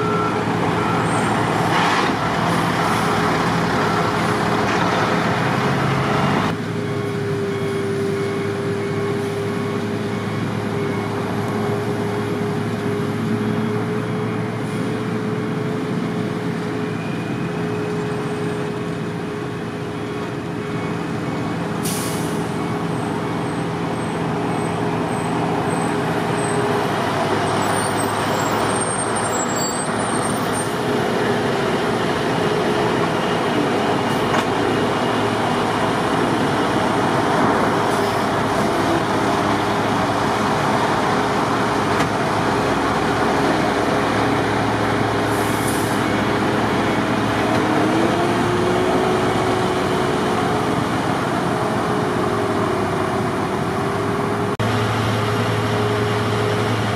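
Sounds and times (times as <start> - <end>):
diesel engine drone: 0.0 - 56.9
snowblower rushing noise: 30.7 - 56.9.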